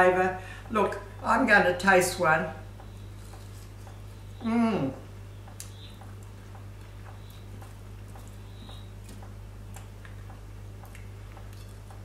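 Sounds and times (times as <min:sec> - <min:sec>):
low electrical hum: 0:00.0 - 0:12.0
person chewing crunchy food: 0:03.0 - 0:04.9, 0:05.6 - 0:12.0.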